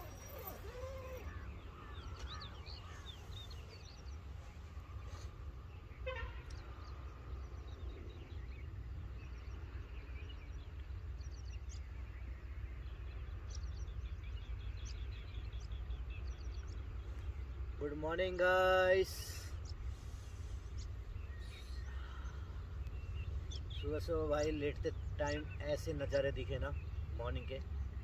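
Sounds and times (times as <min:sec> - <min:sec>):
bird trill: 0:00.0 - 0:04.1
small birds chirping: 0:00.0 - 0:28.0
steady low rumble: 0:19.0 - 0:26.0.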